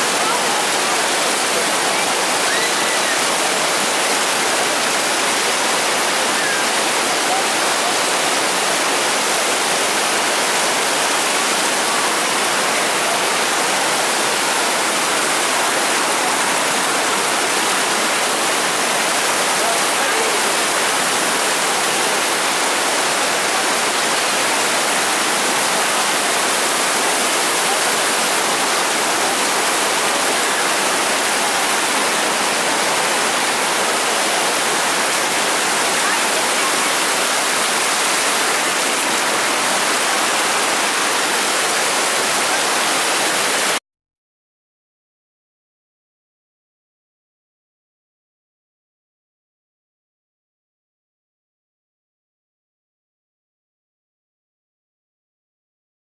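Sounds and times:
water rushing over boulders: 0:00.0 - 0:43.8.

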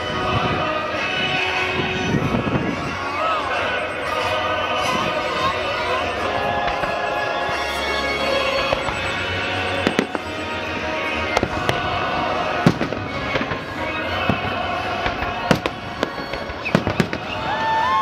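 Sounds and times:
firework shells booming: 0:12.6 - 0:13.6, 0:14.3 - 0:17.4.

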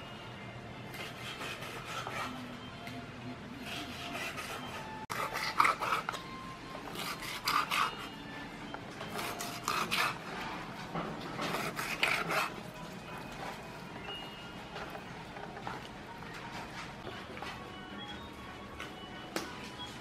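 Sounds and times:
knife sawing through meat: 0:00.9 - 0:02.5, 0:03.6 - 0:06.2, 0:06.9 - 0:08.2, 0:09.1 - 0:10.4, 0:11.4 - 0:12.6.

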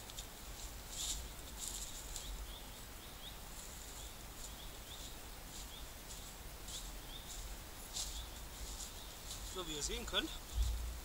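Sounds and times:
low steady rumble: 0:10.3 - 0:11.0.

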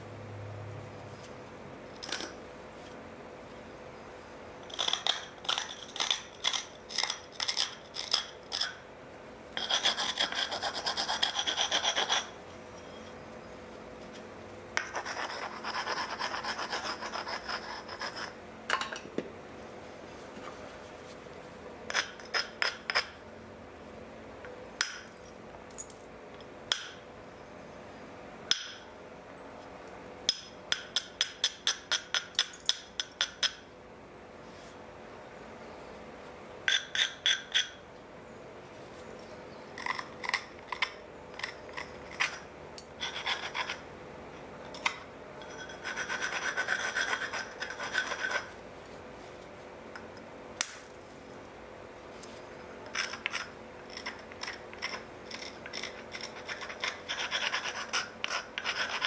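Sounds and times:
scraping of flint edge: 0:52.3 - 0:59.0.

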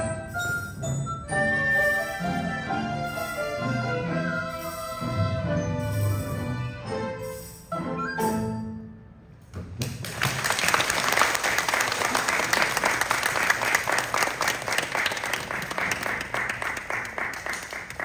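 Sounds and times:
audience applauding: 0:09.8 - 0:18.0.

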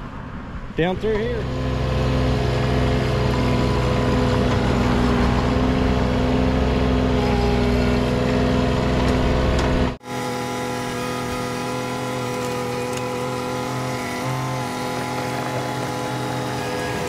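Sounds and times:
excavator diesel engine running: 0:01.4 - 0:17.0.

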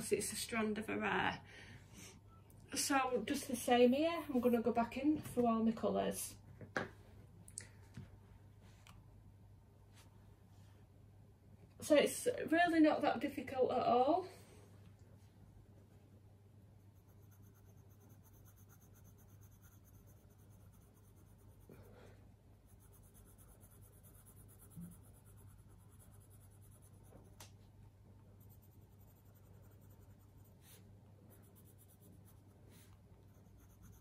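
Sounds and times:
steady low hum: 0:06.4 - 0:34.0
marker strokes on paper: 0:16.9 - 0:22.0, 0:22.6 - 0:27.5, 0:28.4 - 0:34.0.

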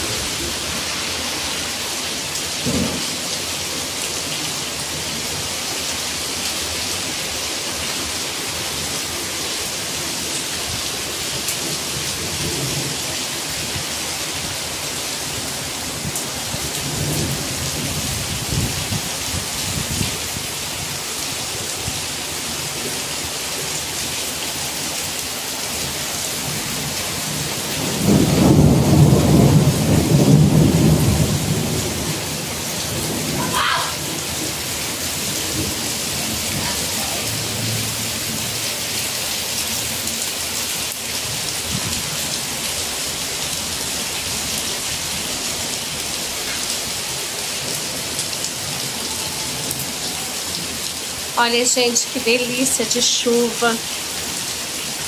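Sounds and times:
rain falling: 0:00.0 - 0:55.0
thunder rumbling: 0:27.2 - 0:38.6.

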